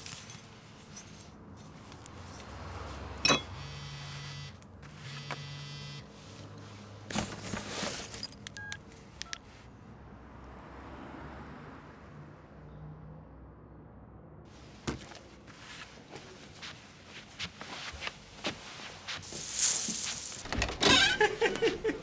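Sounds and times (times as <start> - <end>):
doorbell buzzer: 3.3 - 6.0
mobile phone key beeps: 8.5 - 9.4.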